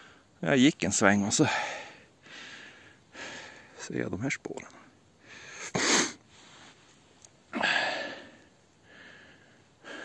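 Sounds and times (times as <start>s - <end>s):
man breathing close to microphone: 1.5s - 3.8s, 7.6s - 10.0s.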